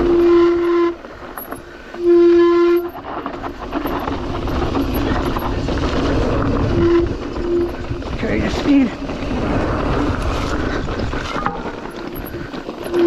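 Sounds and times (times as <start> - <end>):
bike rattling over dirt trail: 0.0 - 13.0
bike brakes squealing: 11.8 - 13.0.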